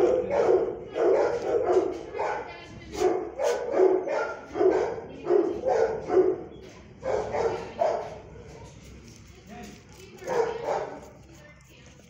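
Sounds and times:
dog barking: 0.0s - 8.2s, 10.2s - 11.2s.

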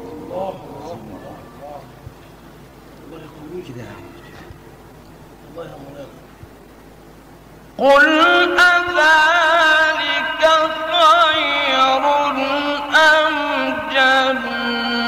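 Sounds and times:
man chanting melodically: 7.8s - 15.0s.

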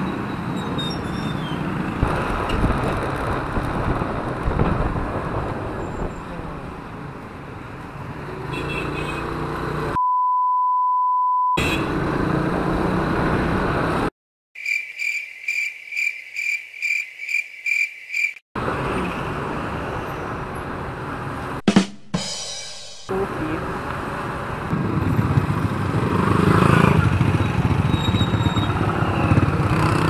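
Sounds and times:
motorcycle riding in traffic: 0.0s - 10.0s, 11.6s - 14.1s, 18.6s - 21.6s, 23.1s - 30.0s
censor bleep: 10.0s - 11.6s.

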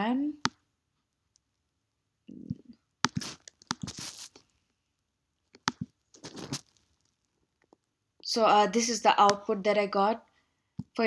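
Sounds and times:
computer mouse clicks: 2.4s - 3.9s
short scratchy rustle: 3.2s - 4.4s.

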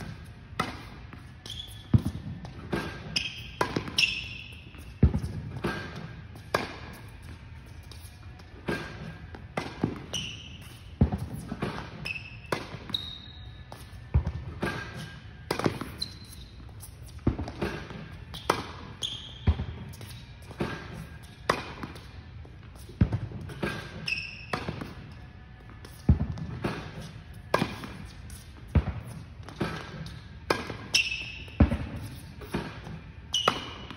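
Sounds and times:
shoe squeaks on court: 0.8s - 6.5s, 10.0s - 21.4s, 23.6s - 25.0s, 30.8s - 32.5s, 33.3s - 33.9s.

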